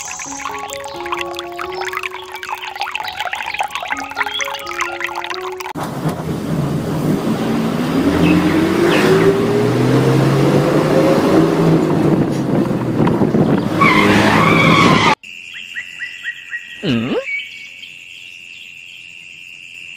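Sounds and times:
bright high sound: 0.0 - 5.8
engine revving: 5.8 - 15.1.

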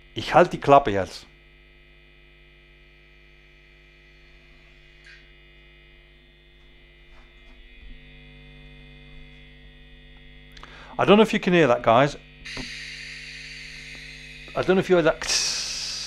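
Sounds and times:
steady electrical hum: 0.0 - 16.0
short hiss: 12.5 - 16.0.

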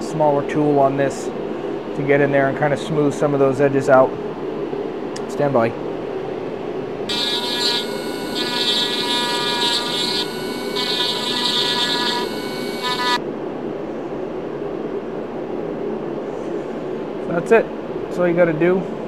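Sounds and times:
rotary tool grinding metal: 7.1 - 13.2.

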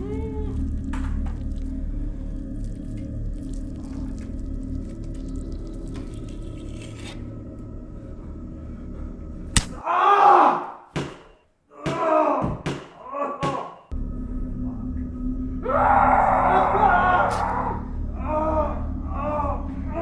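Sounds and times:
low steady drone: 0.0 - 9.8, 13.9 - 20.0
wailing cries: 15.6 - 20.0.

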